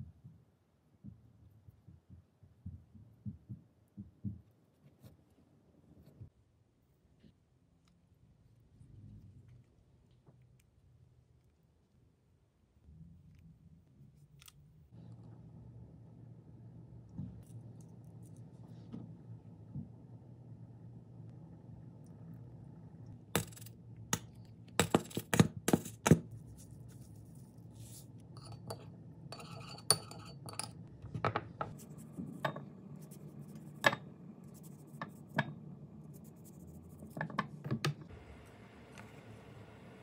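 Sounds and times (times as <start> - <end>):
spoon clinking in ceramic bowl: 28.4 - 30.8.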